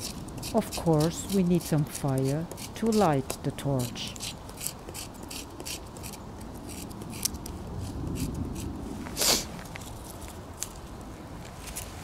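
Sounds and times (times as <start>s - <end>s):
knife scraping bark: 0.0s - 9.5s.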